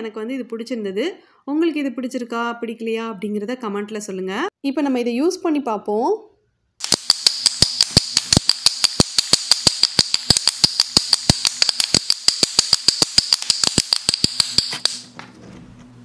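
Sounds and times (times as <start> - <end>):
toy pellet drum rattling: 6.8 - 15.0.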